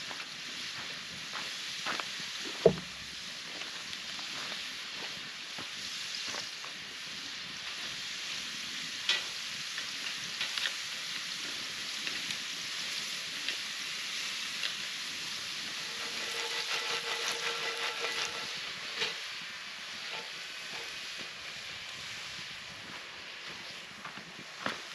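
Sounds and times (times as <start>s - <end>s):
potatoes sizzling in a skillet: 0.0s - 24.9s
skillet scraping on grill grate: 15.6s - 21.1s.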